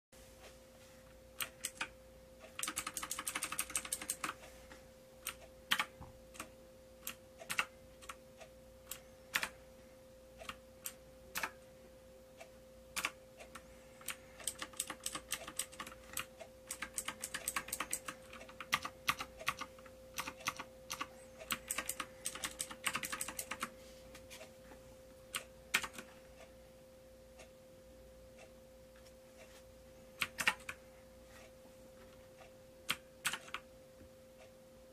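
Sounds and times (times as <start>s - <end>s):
mechanical keyboard typing: 1.4s - 4.4s, 5.2s - 8.2s, 8.9s - 9.6s, 10.4s - 11.6s, 13.0s - 23.7s, 25.3s - 26.2s, 30.2s - 30.8s, 32.8s - 33.6s.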